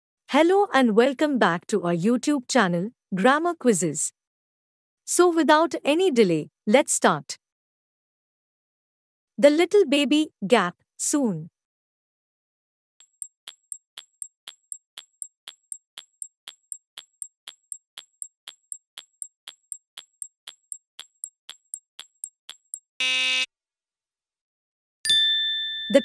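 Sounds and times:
timer ticking: 13.0 - 22.9
short loud buzzer: 23.0 - 23.5.

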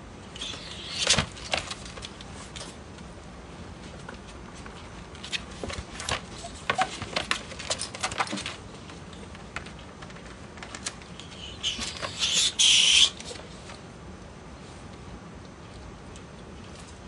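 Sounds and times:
ferret hissing: 0.3 - 1.3, 11.3 - 13.2
ferrets scrabbling and clicking: 0.4 - 3.1, 3.8 - 13.8.

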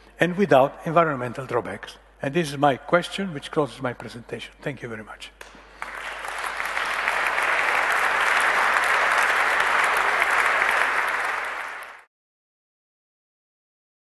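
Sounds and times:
audience applauding: 5.7 - 12.1.

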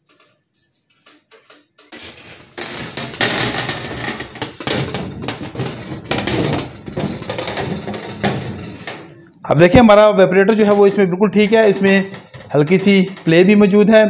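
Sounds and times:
metal plate scraping against plastic: 0.0 - 9.3, 10.5 - 13.8
uneven knocks: 1.4 - 9.2.

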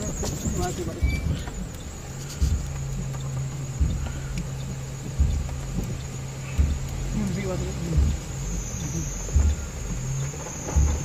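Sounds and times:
rain pattering on vehicle: 0.0 - 11.0
vehicle engine humming: 0.0 - 11.0
dull thump: 3.8 - 11.0.

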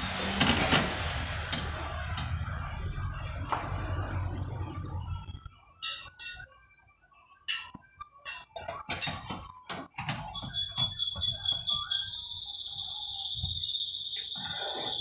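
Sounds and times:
utensils clinking on dishes: 5.8 - 6.6, 7.4 - 11.0.

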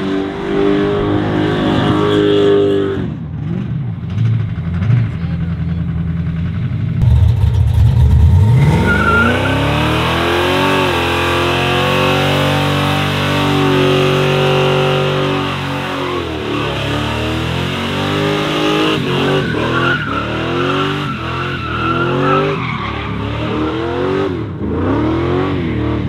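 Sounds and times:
car engine revving: 7.0 - 26.0.

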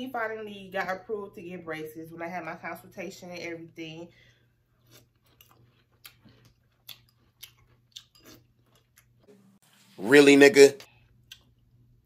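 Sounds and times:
cereal crunching while chewed: 4.8 - 9.3.

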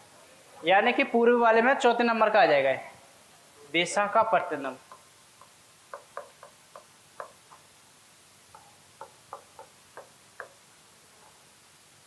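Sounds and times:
stylus tapping on glass touchscreen: 4.8 - 7.7, 8.5 - 10.6.

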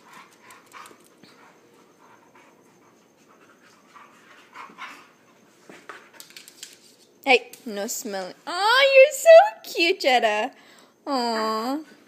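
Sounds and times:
dogs panting: 0.0 - 6.2.

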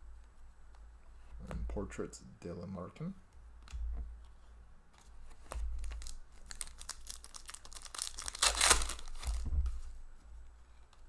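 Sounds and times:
plastic wrapper crinkling and tearing: 5.8 - 9.5.

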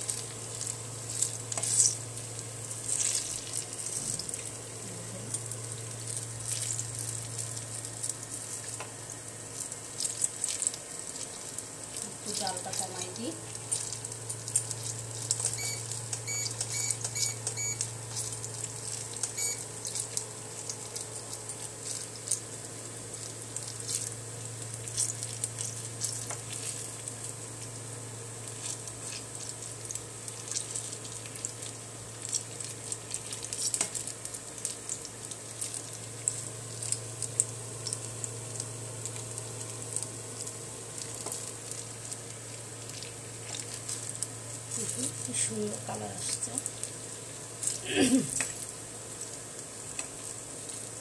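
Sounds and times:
food sizzling in hot oil: 0.0 - 51.0
spatula stirring: 0.0 - 51.0
short electronic beeps: 15.5 - 17.9.

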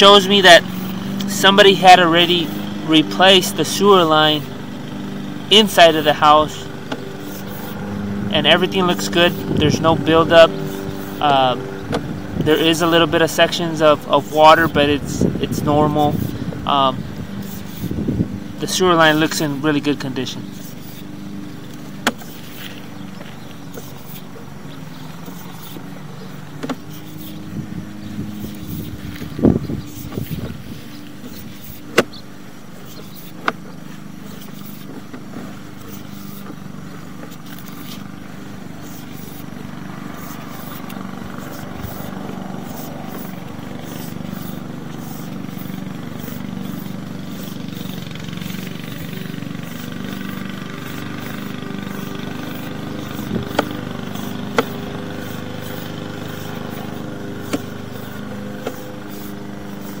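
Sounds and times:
motor hum: 0.0 - 60.0
sharp clicks: 52.0 - 57.8.

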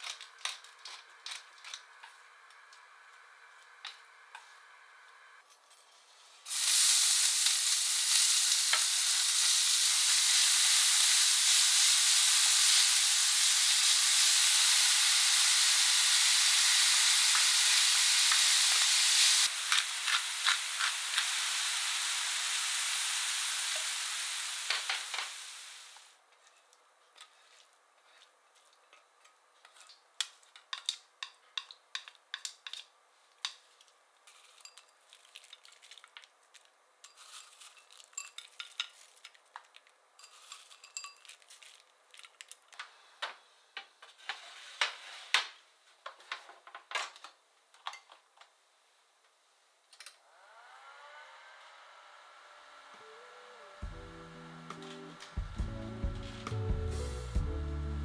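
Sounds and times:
food sizzling in frying pan: 6.5 - 26.1
spatula stirring: 26.4 - 36.1
scrapes and clinks: 40.2 - 41.8.

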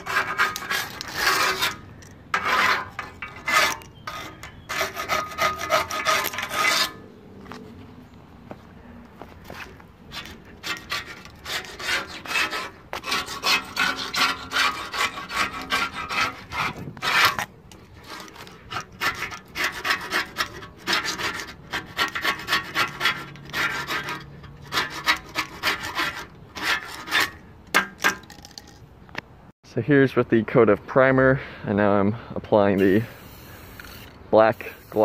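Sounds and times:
metal scraper scraping paint off iron: 0.0 - 7.2, 9.4 - 28.6.

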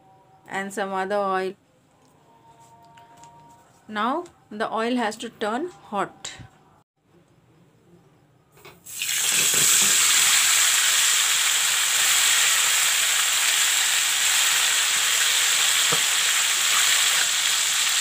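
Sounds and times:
oil sizzling loudly: 8.9 - 18.0.

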